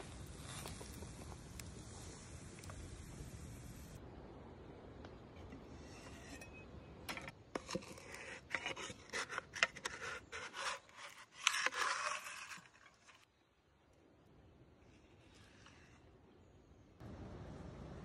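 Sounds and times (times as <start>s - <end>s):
wooden spatula scraping frying pan: 5.7s - 13.2s.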